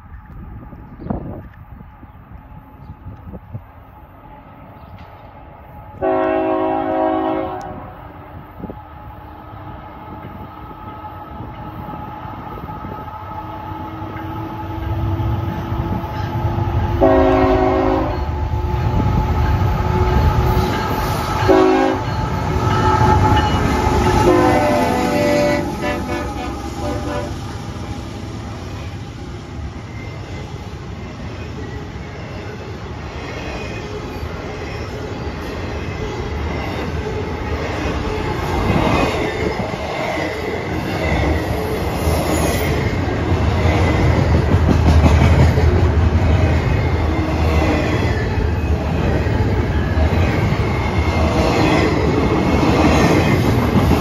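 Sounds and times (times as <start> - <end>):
train engine and cars rumbling: 0.0 - 54.0
locomotive horn blasts: 6.0 - 8.0, 17.0 - 18.3, 21.4 - 22.2, 22.8 - 27.5.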